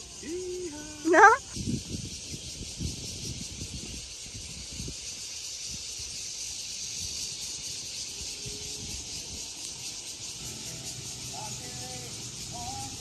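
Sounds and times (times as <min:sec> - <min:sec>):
steady high hiss: 0:00.0 - 0:13.0
wind gusting on microphone: 0:00.1 - 0:09.6.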